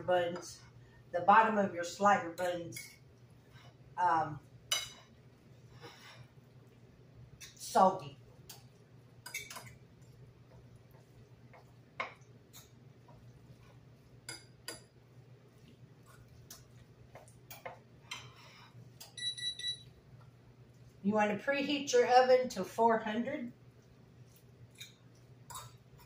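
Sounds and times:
low steady hum: 0.0s - 26.0s
hands mixing food on plate: 2.2s - 21.0s, 23.5s - 26.0s
short electronic beeps: 19.2s - 19.8s.

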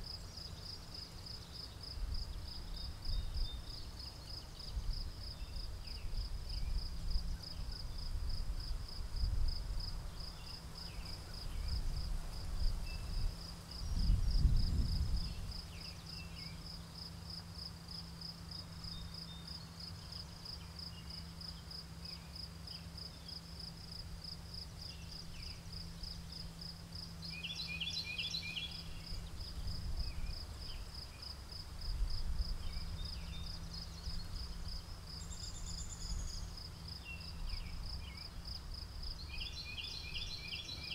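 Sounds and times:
crickets chirping: 0.0s - 40.9s
wind rumble on microphone: 1.9s - 3.9s, 4.5s - 15.8s, 28.9s - 31.0s, 31.7s - 34.8s.

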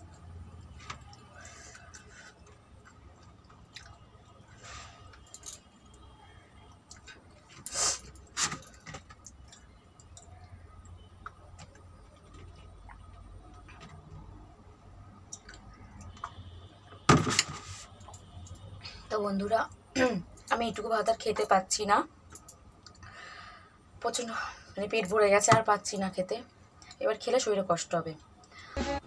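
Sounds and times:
person chewing: 1.1s - 4.1s.

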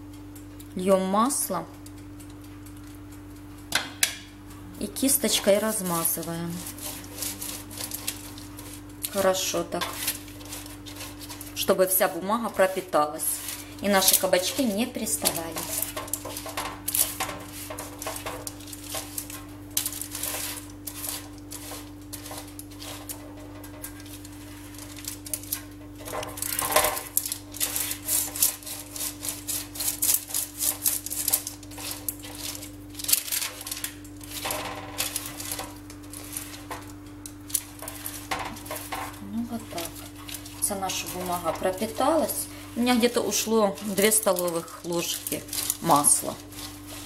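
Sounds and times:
brush scratching on parchment paper: 5.8s - 47.0s
paper rustling: 37.5s - 47.0s.

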